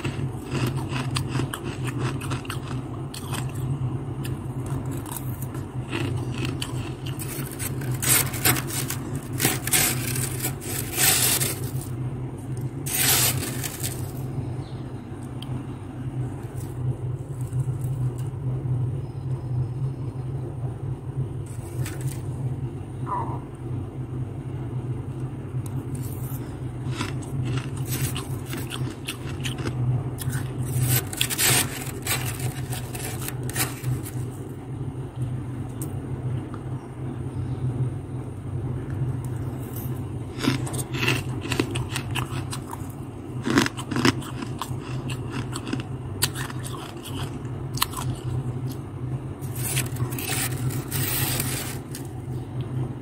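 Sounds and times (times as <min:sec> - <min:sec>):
steady low hum: 0:00.0 - 0:53.0
metal spoon scraping frost: 0:05.0 - 0:11.9, 0:12.8 - 0:14.3, 0:26.0 - 0:34.3, 0:49.4 - 0:52.1.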